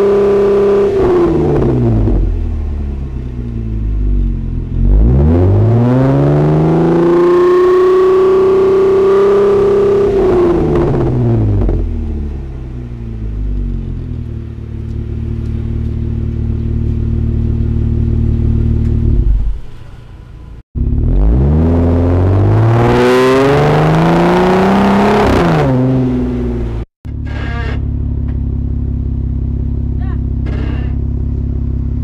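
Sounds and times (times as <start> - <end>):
car engine accelerating hard: 0.0 - 26.9
car engine idling: 1.4 - 5.2, 11.0 - 21.2, 26.0 - 32.0.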